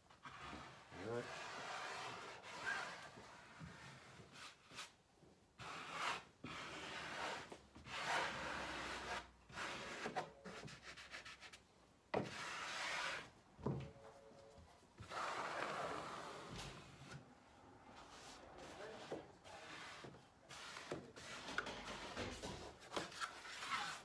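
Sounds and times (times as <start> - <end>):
trowel scraping over fabric: 23.0 - 24.0.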